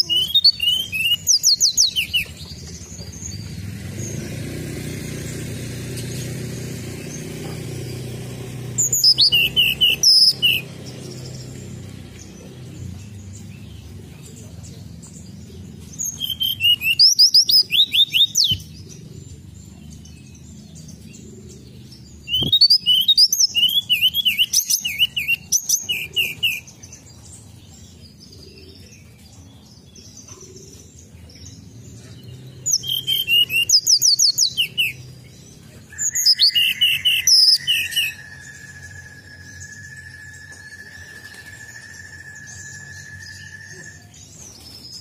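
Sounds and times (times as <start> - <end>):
bird whistled song: 0.0 - 4.2, 8.7 - 13.9, 15.0 - 19.0, 21.1 - 45.0.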